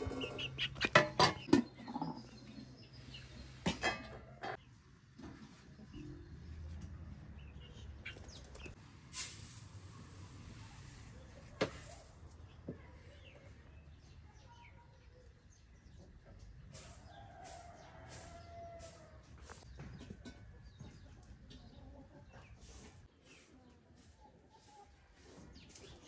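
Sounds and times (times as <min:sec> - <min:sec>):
hens clucking: 0:00.0 - 0:04.6, 0:15.9 - 0:26.0.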